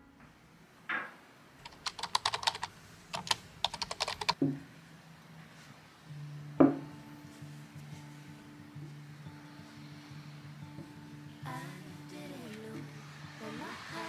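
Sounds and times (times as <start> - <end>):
keyboard typing: 1.6 - 4.4
glass bowl set down on table: 6.6 - 6.8.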